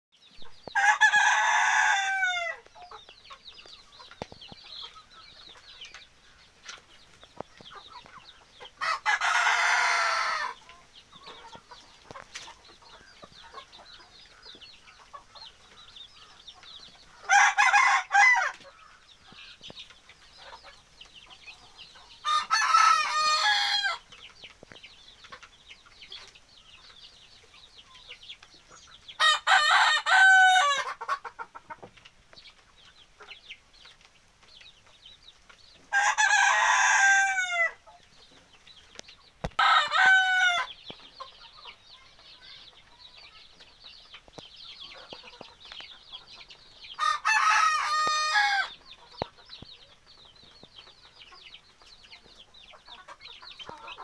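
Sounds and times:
hens clucking: 0.4 - 54.0
rooster crowing: 0.8 - 2.6, 22.2 - 24.0, 29.2 - 30.9, 39.6 - 40.7, 47.0 - 48.7.

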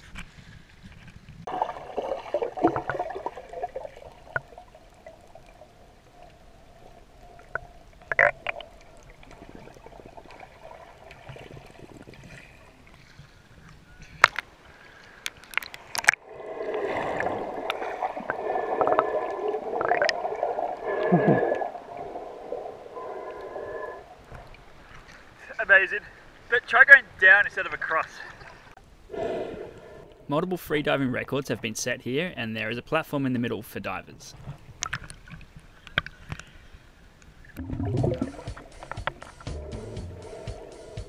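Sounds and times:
bubbling: 1.5 - 12.9, 15.4 - 24.7, 37.5 - 40.9
underwater gurgling: 1.5 - 13.7, 15.3 - 25.1, 37.4 - 41.0
sharp underwater clicks: 15.1 - 16.2.

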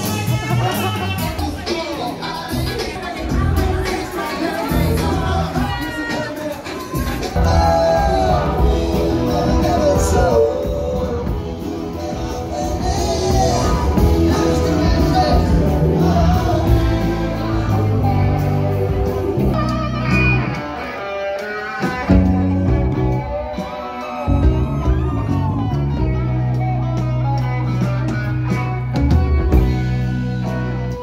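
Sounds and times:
bass guitar: 0.0 - 31.0
drums: 0.0 - 31.0
electric guitars: 0.0 - 31.0.

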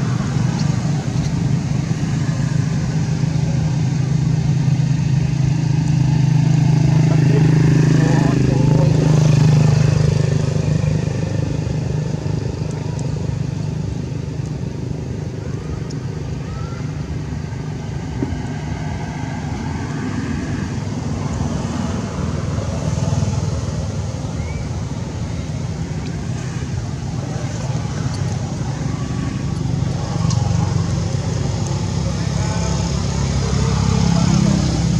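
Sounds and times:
engine humming: 0.0 - 34.9.

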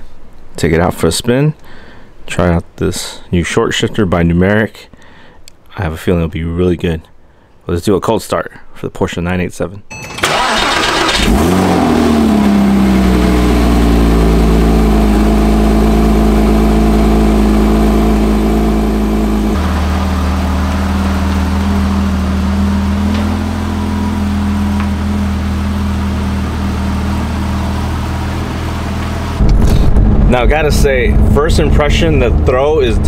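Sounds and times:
engine starter cranking: 9.9 - 12.2
car engine idling: 10.2 - 33.0.

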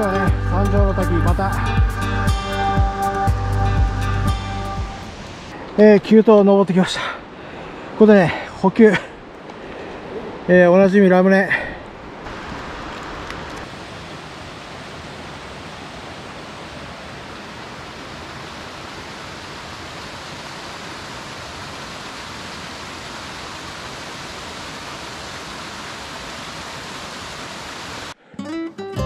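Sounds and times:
stream rushing over rocks: 5.0 - 28.2.

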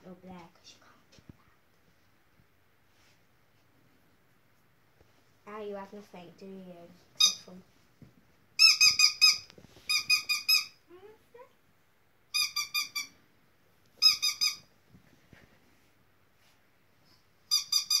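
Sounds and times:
squeaky dog toy squeaks: 7.2 - 7.5, 8.6 - 10.8, 12.3 - 13.2, 14.0 - 14.7, 17.5 - 18.0.

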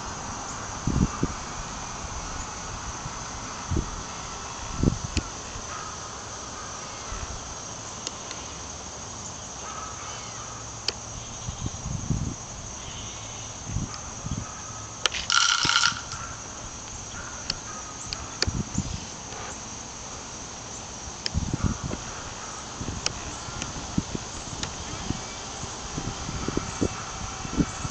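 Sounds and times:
wind rumble on microphone: 0.0 - 5.8, 11.1 - 12.9, 13.5 - 16.4, 17.1 - 19.1, 21.2 - 27.9
high-pitched insect drone: 0.0 - 27.9.

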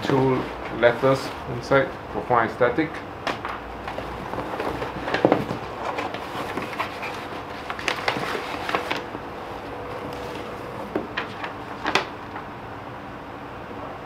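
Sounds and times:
paper rustling: 3.8 - 12.4.

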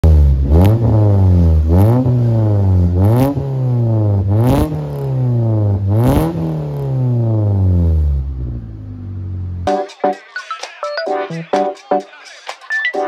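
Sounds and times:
car engine revving: 0.0 - 9.7.

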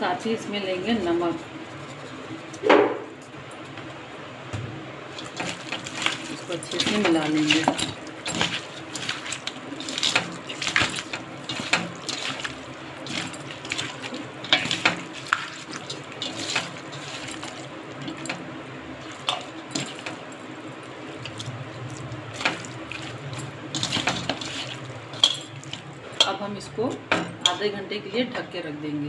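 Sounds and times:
wet squishing of meat: 5.1 - 26.2
pieces tapping metal bowl: 23.8 - 26.4.

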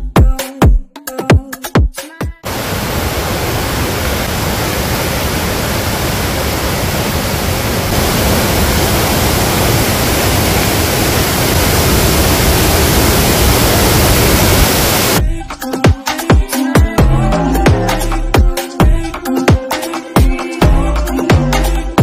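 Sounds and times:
roar of rushing floodwater: 2.5 - 15.2.

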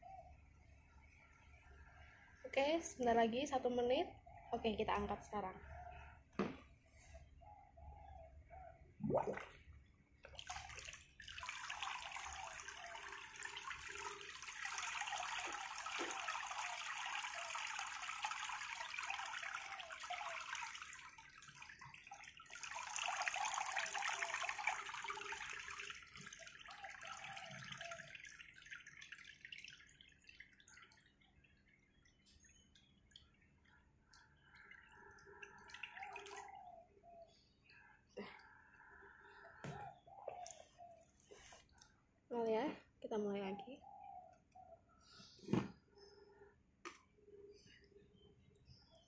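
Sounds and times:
water splashing: 9.0 - 31.4
water running and trickling: 10.2 - 36.6.

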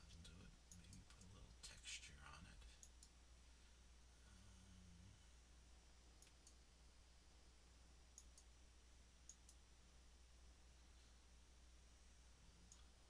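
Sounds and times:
steady low hum: 0.0 - 13.0
computer mouse clicks: 2.8 - 3.2, 6.2 - 6.6, 8.1 - 8.5, 9.2 - 9.6, 12.7 - 12.9.

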